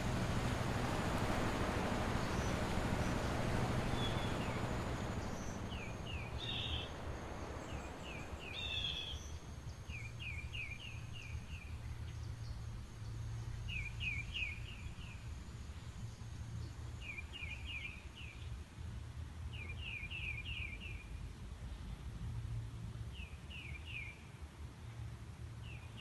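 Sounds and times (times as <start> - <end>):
motorboat rushing: 0.0 - 11.9
small birds chirping: 0.0 - 12.6
steady low hum: 0.0 - 19.5.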